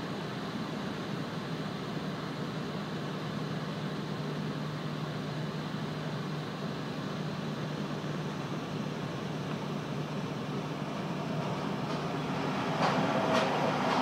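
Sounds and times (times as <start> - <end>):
electric locomotive motor hum: 0.0 - 14.0
rushing noise: 7.2 - 14.0.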